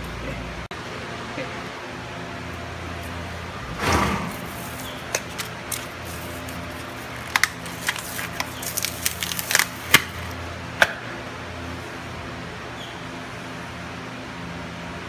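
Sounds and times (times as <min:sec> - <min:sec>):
steady low hum: 0:00.0 - 0:15.0
sharp clicks and crinkles: 0:04.7 - 0:10.4.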